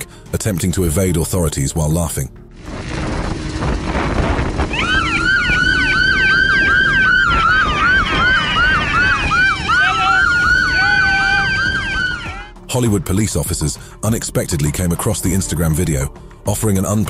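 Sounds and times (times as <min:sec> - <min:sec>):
low road rumble: 0:00.0 - 0:17.0
police siren yelping: 0:04.6 - 0:12.5.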